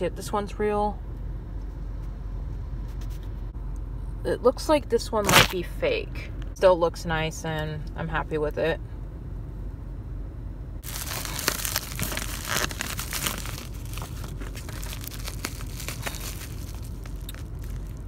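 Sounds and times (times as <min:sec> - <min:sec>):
plastic packaging crinkling: 0:10.8 - 0:18.0.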